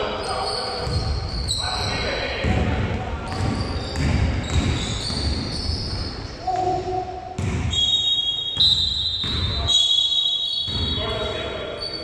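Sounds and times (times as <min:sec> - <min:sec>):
basketball bouncing on court: 0:00.8 - 0:09.7, 0:10.6 - 0:11.1.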